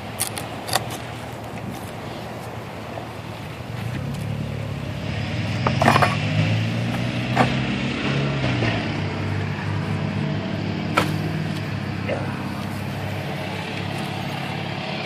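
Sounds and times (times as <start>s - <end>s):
knocks and clinks of wooden box: 5.6s - 6.3s.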